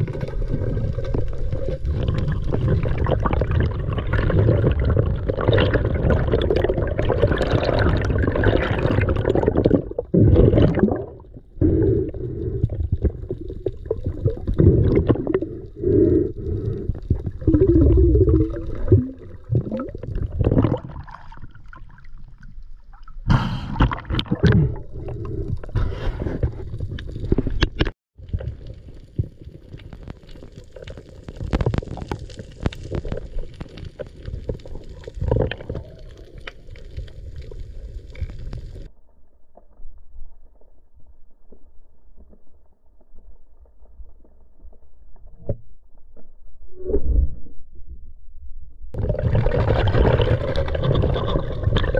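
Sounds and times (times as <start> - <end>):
muffled underwater rushing: 0.0 - 22.0, 49.0 - 51.9.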